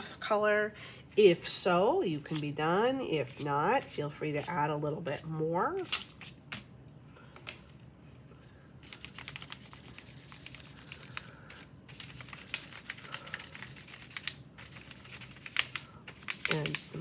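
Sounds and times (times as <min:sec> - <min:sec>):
chalk pastel scratching on paper: 0:08.8 - 0:11.2, 0:11.9 - 0:17.0.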